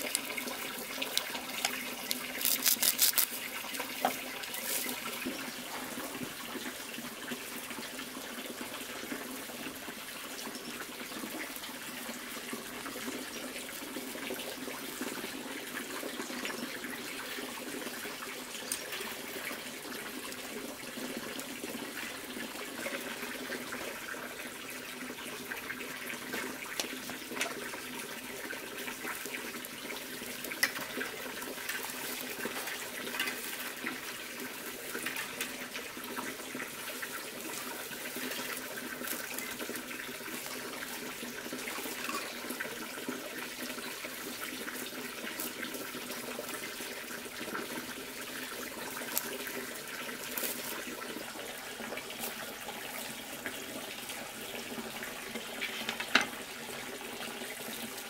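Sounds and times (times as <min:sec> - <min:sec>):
dry grass rustling: 0:00.0 - 0:05.5, 0:48.9 - 0:51.3
running water: 0:00.0 - 0:58.0
small clicks: 0:01.1 - 0:03.4.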